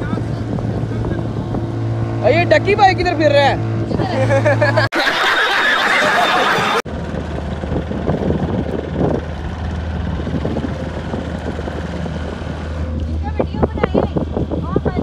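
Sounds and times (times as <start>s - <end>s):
wind on microphone: 0.0s - 4.6s, 6.1s - 15.0s
motorboat engine humming: 0.0s - 15.0s
laughter: 4.1s - 6.8s.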